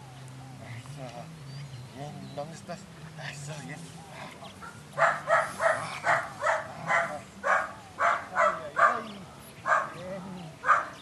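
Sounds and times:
puppy barking: 4.6s - 11.0s.

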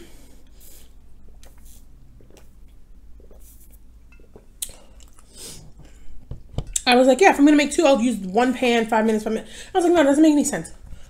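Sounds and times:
sipping through a straw: 0.4s - 2.6s, 3.2s - 3.8s.

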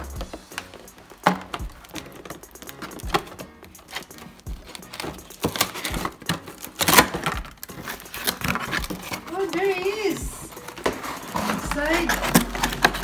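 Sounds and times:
knife slitting tape: 3.8s - 9.6s
cardboard knocks and scrapes: 10.5s - 13.0s.

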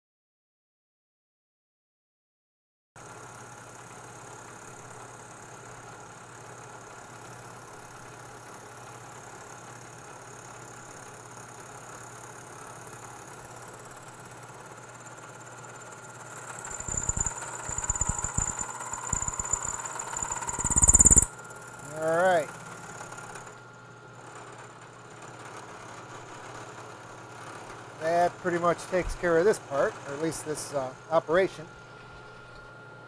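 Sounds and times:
milling machine spindle whine: 10.4s - 33.0s
high squeal: 16.6s - 22.0s.

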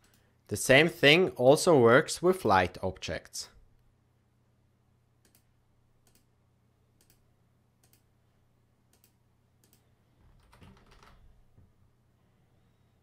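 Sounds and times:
computer mouse clicks: 5.2s - 6.3s, 7.0s - 7.2s, 7.8s - 8.1s, 8.9s - 9.9s.

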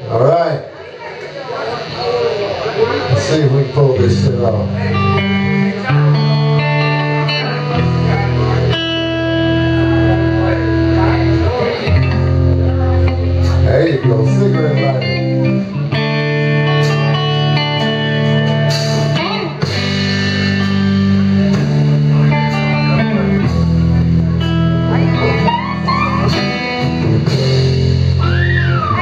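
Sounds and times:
bass guitar: 0.0s - 29.0s
electric guitar chords: 0.0s - 29.0s
drum kit with cymbal hits: 1.2s - 29.0s.

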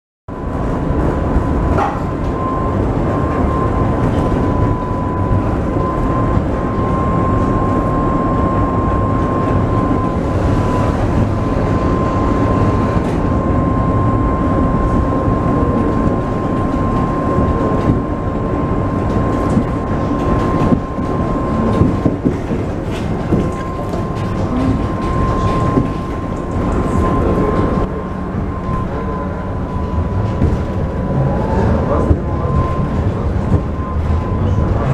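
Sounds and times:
tram wheels rumbling on rails: 0.3s - 34.9s
wavering whine: 0.3s - 34.9s.

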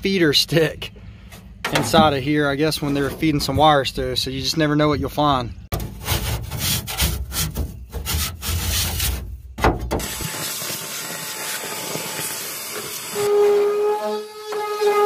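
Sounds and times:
hand tool scraping foam: 5.8s - 9.3s
steady hiss: 10.1s - 13.2s.

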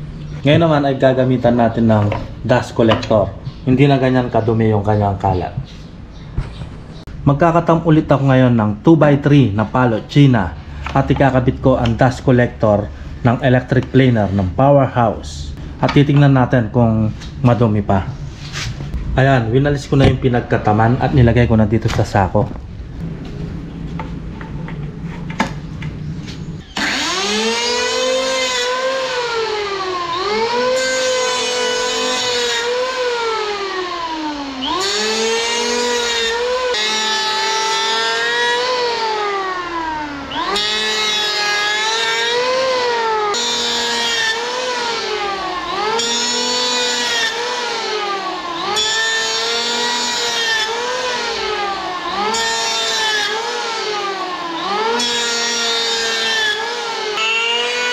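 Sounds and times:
electric planer whining: 26.6s - 57.9s.

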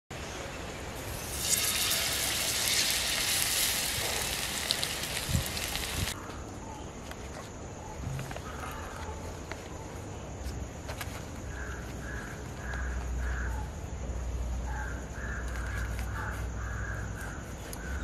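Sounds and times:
fish sizzling in hot oil: 1.0s - 6.2s.

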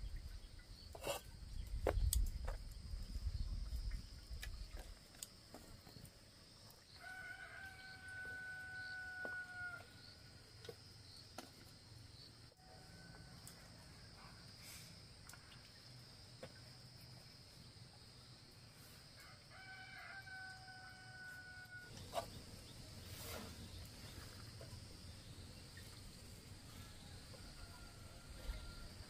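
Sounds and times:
rooster crowing: 7.0s - 9.9s, 19.3s - 21.9s, 26.9s - 29.0s.

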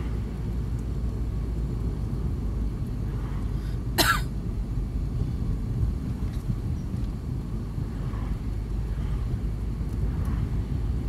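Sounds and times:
car cabin road rumble: 0.0s - 11.0s
person coughing: 4.0s - 4.3s.

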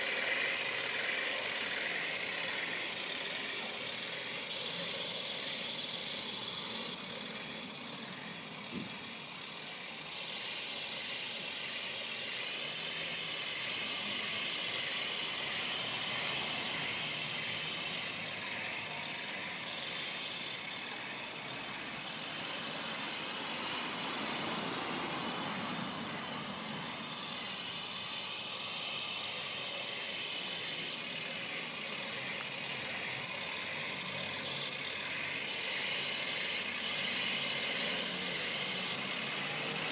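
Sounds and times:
toy tank motors and tracks: 0.0s - 39.9s.

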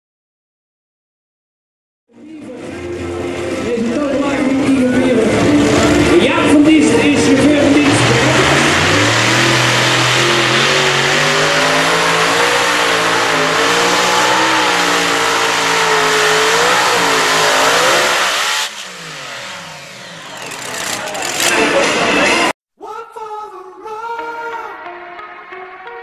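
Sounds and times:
supercharged tractor engines roaring: 2.2s - 22.6s.

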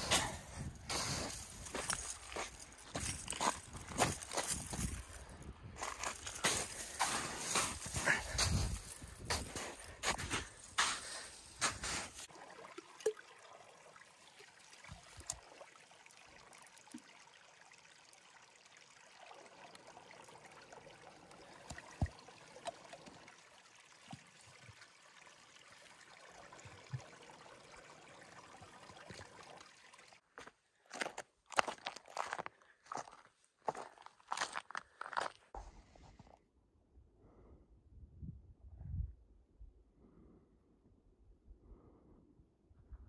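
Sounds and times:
crunching footsteps: 0.0s - 12.3s, 30.4s - 35.6s
water trickling into plastic bottle: 0.2s - 30.5s.

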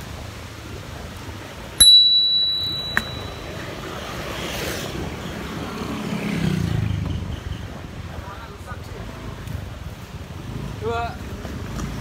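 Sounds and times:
bell click: 1.8s - 3.8s
bicycle bell ding: 1.8s - 4.0s.

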